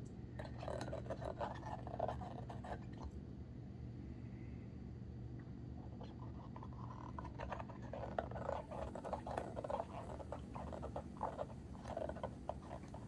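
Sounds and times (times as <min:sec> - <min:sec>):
dog chewing rubber toy: 0:00.4 - 0:03.0, 0:05.9 - 0:13.0.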